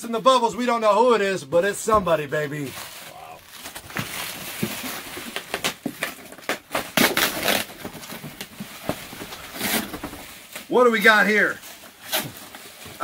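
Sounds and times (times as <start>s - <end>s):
cardboard box rustling and crackling: 2.5s - 10.6s.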